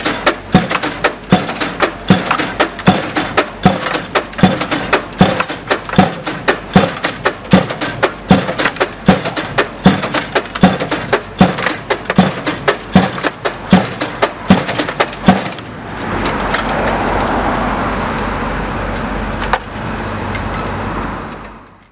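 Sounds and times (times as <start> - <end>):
hydraulic hammer striking pile: 0.0 - 16.7
engine and hydraulics humming: 0.0 - 21.9.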